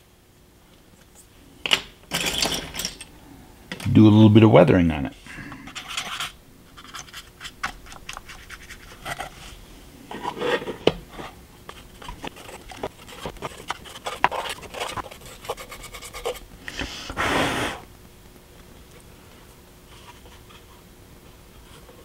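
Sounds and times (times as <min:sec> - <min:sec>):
brush scratching and rubbing: 0:05.8 - 0:17.7.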